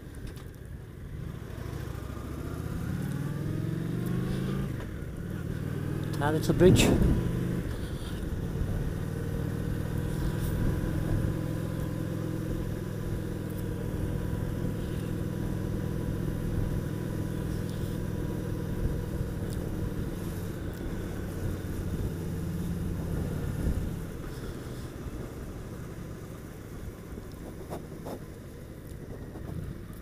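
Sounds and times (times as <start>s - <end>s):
motorcycle engine running: 0.8s - 30.0s.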